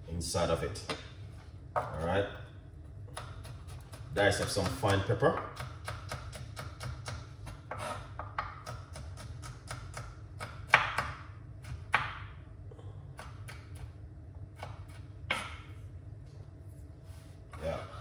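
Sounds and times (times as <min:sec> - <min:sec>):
knife chopping on cutting board: 0:03.1 - 0:12.3.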